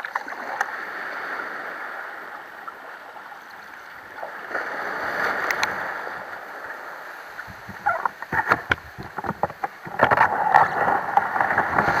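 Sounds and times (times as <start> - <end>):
water splashing against a hull: 0.0 - 12.0
surf breaking: 3.7 - 12.0.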